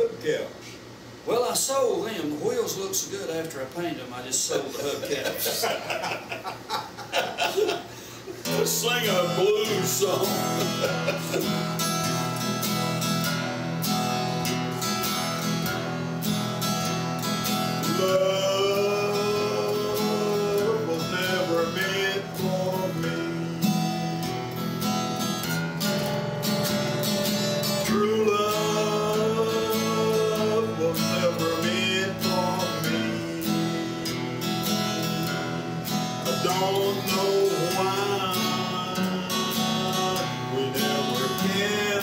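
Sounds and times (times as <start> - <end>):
acoustic guitar strumming: 5.2 - 42.0
man singing blues: 7.2 - 12.2, 17.4 - 24.3, 27.0 - 42.0.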